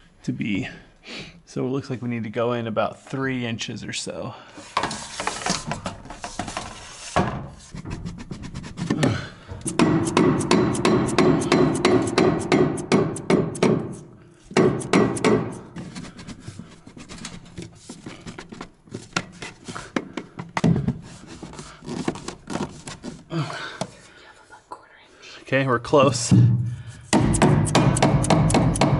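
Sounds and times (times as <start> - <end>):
hammer tapping on plastic pipe: 7.8 - 16.3, 27.1 - 28.9.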